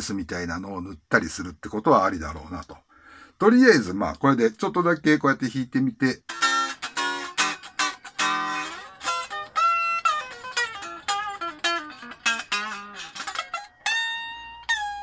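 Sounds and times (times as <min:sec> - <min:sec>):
electric guitar picking: 0:06.3 - 0:15.0.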